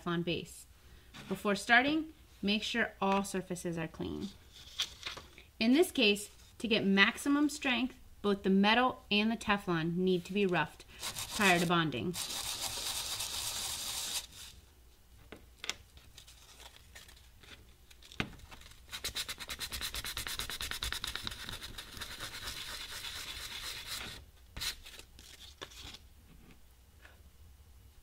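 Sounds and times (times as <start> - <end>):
plastic block rubbed on sandpaper: 11.0 - 14.5, 19.0 - 24.8
metal washer scrubbed on sandpaper: 11.0 - 14.6, 19.0 - 24.2.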